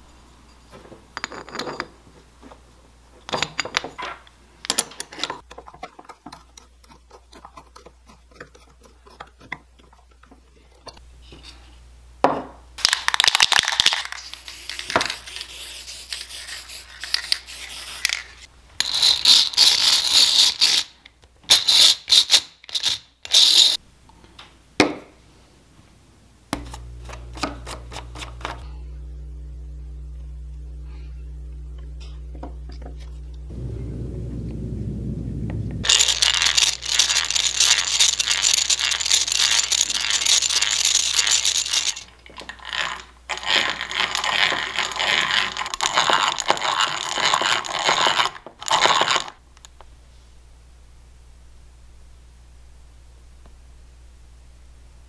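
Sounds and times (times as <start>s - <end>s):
aerosol spray can hissing: 14.1s - 18.2s
metal drill parts clicking: 35.9s - 42.1s.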